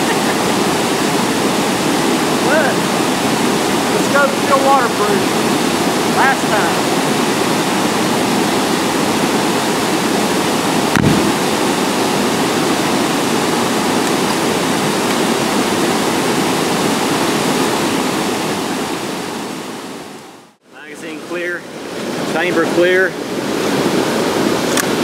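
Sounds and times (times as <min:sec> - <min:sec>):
waterfall and river rushing: 0:00.0 - 0:25.0
short thump: 0:10.9 - 0:11.4.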